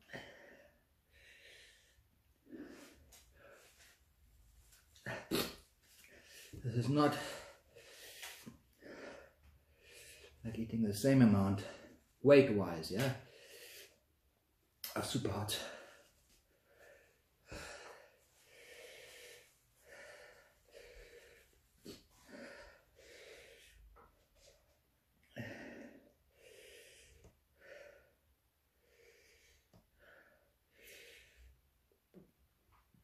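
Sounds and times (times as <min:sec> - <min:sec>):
man panting: 0:06.0 - 0:10.4, 0:15.6 - 0:23.9.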